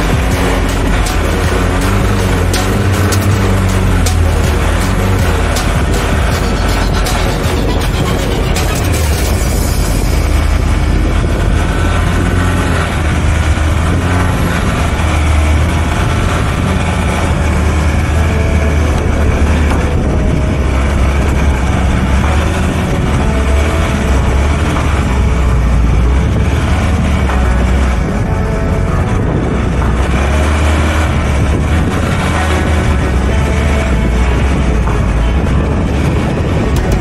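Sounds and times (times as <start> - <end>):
vehicle engine rumbling: 0.0 - 37.0.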